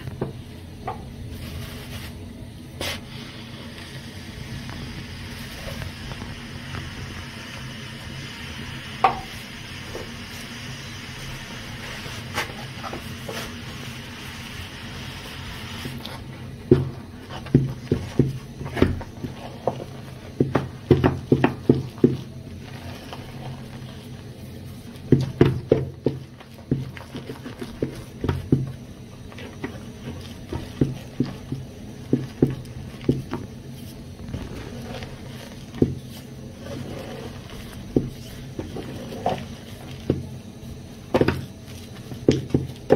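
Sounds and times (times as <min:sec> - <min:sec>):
steady hiss: 0:00.0 - 0:42.9
wooden spoon scraping a saucepan: 0:01.3 - 0:02.2, 0:11.2 - 0:42.9.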